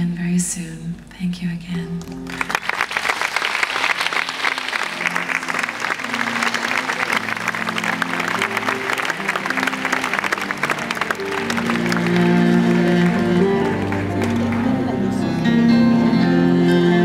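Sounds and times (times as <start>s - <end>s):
audience applauding: 2.3s - 15.4s
band playing slow held notes: 5.1s - 17.0s.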